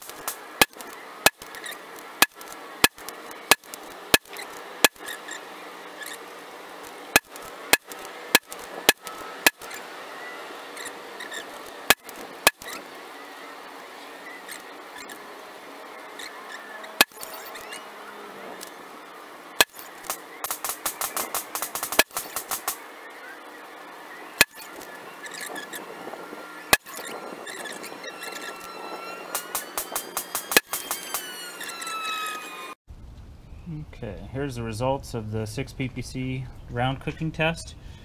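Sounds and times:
sharp rifle shots: 19.6 - 22.8.

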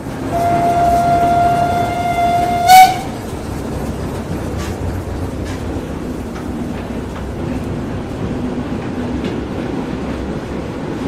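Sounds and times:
rail joint clicks: 0.0 - 11.0
train coach rumbling: 0.0 - 11.0
steam whistle: 0.3 - 3.2.

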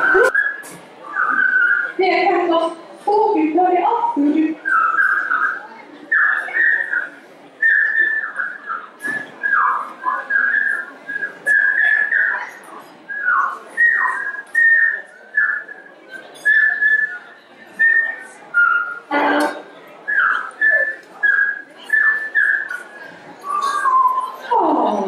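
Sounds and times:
person whistling bird-like chirps: 20.1 - 24.4.

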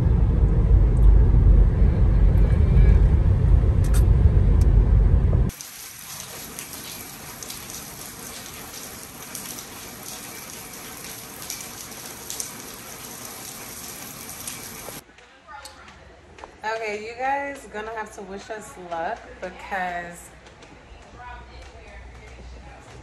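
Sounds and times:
car driving rumble inside cabin: 0.0 - 5.5
rain hissing and pattering: 5.5 - 15.0.

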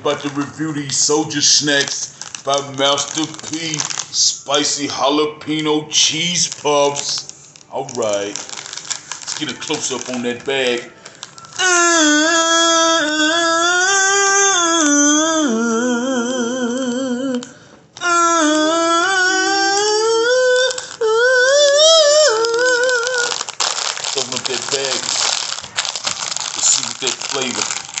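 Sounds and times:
man singing: 0.0 - 8.3, 11.6 - 23.4
plastic snack bag crinkling: 0.0 - 14.0, 17.3 - 28.0.

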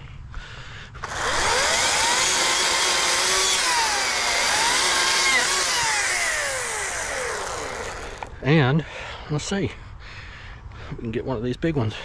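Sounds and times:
electric chainsaw cutting wood: 1.0 - 8.4.

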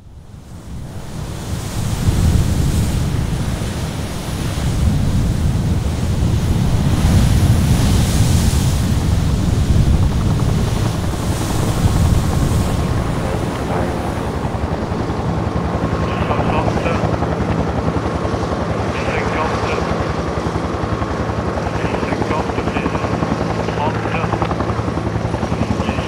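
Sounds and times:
wind noise on microphone: 0.0 - 18.8
churning water rumble: 0.5 - 26.0
waves crashing: 0.6 - 24.4.

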